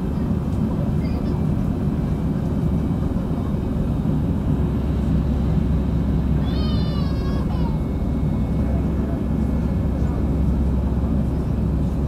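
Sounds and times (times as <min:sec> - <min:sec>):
airliner cabin jet engine rumble: 0:00.0 - 0:12.0.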